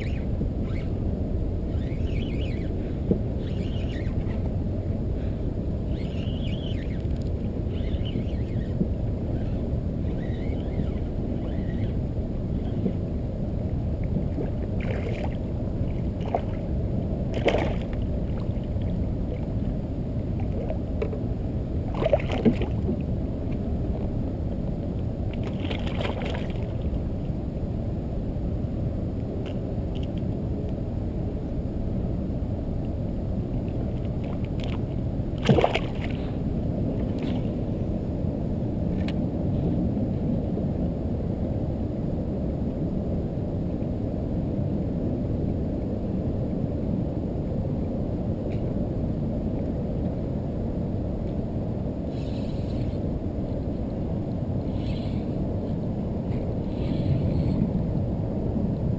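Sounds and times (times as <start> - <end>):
wind noise on microphone: 0.0 - 58.9
water lapping against hull: 14.0 - 16.7, 17.3 - 19.5, 20.3 - 21.2, 21.9 - 24.1, 25.3 - 26.9, 34.1 - 37.8
splashes and knocks: 35.4 - 36.2.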